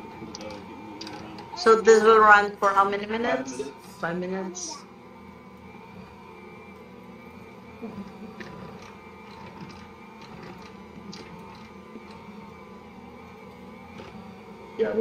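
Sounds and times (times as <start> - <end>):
stand mixer running: 0.0 - 15.0.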